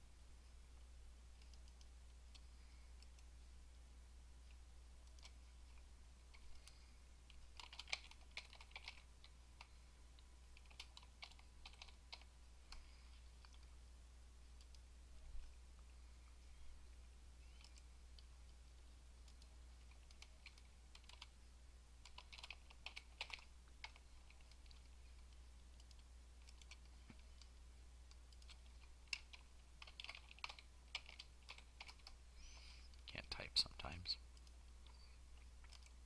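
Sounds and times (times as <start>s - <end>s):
low steady hum: 0.0s - 36.0s
computer keyboard typing: 1.3s - 3.3s, 4.4s - 9.8s, 10.5s - 13.7s, 19.2s - 21.4s, 22.0s - 33.2s, 34.3s - 36.0s.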